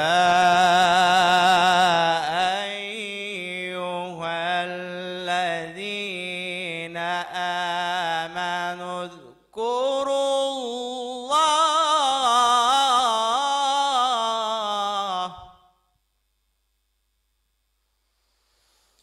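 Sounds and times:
man reciting melodically: 0:00.0 - 0:15.6.

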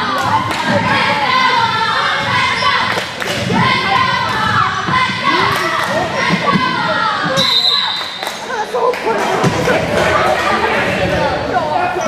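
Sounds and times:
children shouting and cheering: 0:00.0 - 0:07.4.

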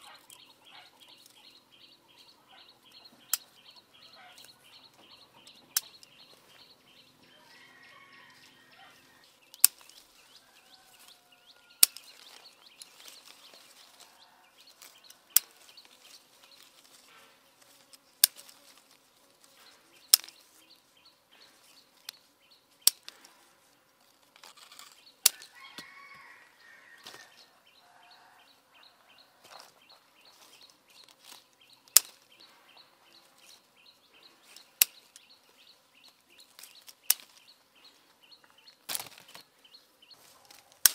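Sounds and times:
pruning shears snipping: 0:03.2 - 0:04.7, 0:05.4 - 0:06.6, 0:09.4 - 0:20.6, 0:21.5 - 0:23.4, 0:24.1 - 0:26.0, 0:30.4 - 0:32.6, 0:34.5 - 0:35.3, 0:36.1 - 0:37.5, 0:38.8 - 0:39.5, 0:40.3 - 0:40.9.

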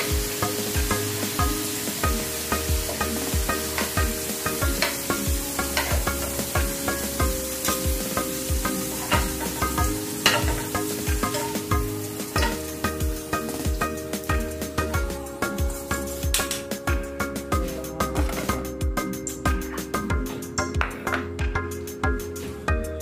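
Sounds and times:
hot oil sizzling: 0:00.0 - 0:21.4
background music with beat: 0:00.0 - 0:23.0.

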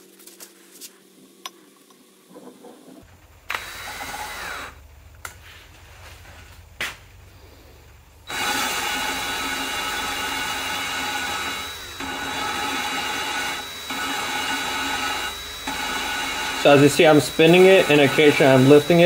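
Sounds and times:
cordless drill whirring: 0:03.5 - 0:04.8, 0:08.3 - 0:19.0
valve grinding rub: 0:08.3 - 0:19.0.

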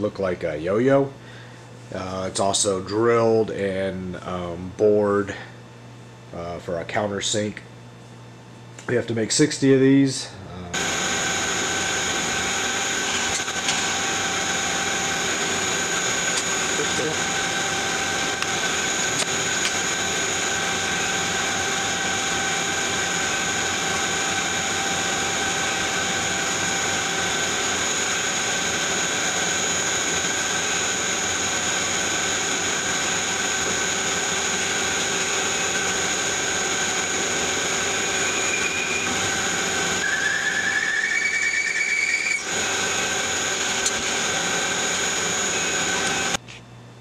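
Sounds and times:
lathe machine whine: 0:10.7 - 0:46.4
high tone rising in pitch: 0:37.8 - 0:42.5.

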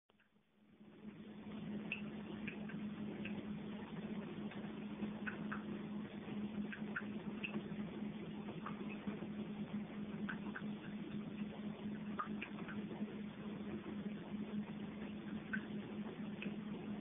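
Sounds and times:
steady low hum: 0:00.1 - 0:17.0.

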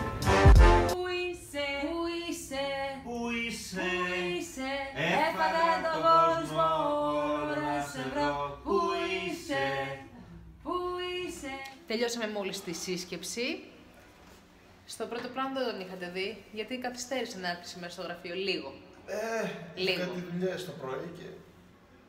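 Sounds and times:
voices singing unaccompanied: 0:01.0 - 0:11.8.

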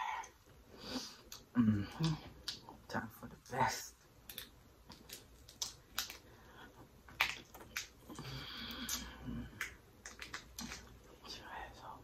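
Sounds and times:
lobster shell cracking: 0:04.2 - 0:06.3, 0:07.1 - 0:08.1, 0:08.7 - 0:10.9.

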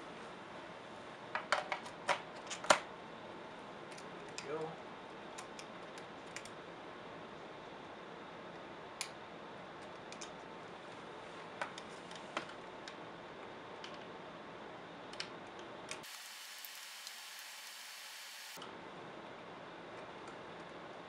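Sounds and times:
steady hiss: 0:16.0 - 0:18.6.

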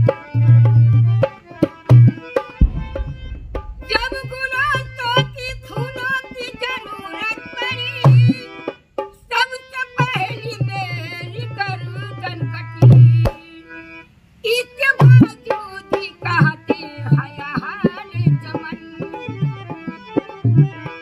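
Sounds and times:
harmonium: 0:00.0 - 0:21.0
barrel drum bass strokes: 0:01.8 - 0:06.5
woman singing: 0:03.9 - 0:08.6, 0:09.2 - 0:13.7, 0:14.4 - 0:19.4.

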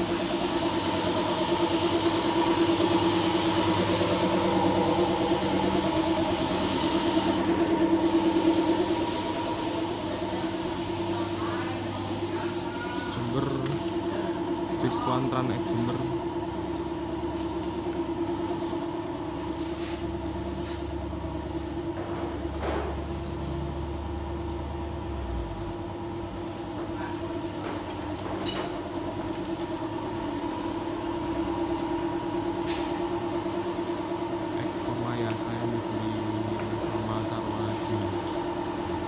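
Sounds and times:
machinery humming: 0:00.0 - 0:26.8.

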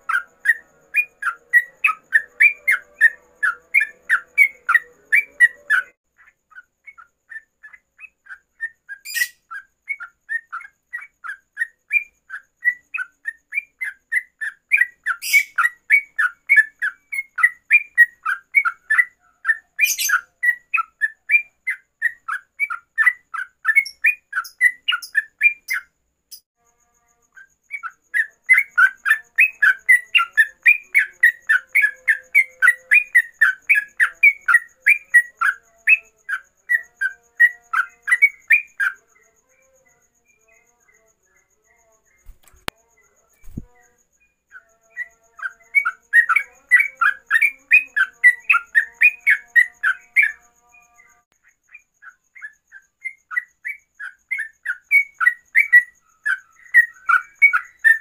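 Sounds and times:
bird singing rapid chirps: 0:00.0 - 0:26.4, 0:27.3 - 0:58.0
sharp clicks: 0:42.3 - 0:42.8.

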